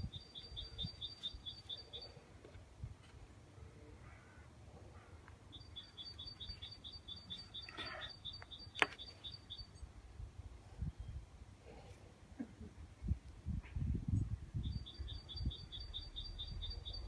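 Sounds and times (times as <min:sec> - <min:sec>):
bird chirping: 0:00.0 - 0:02.3, 0:05.5 - 0:09.9, 0:14.6 - 0:17.0.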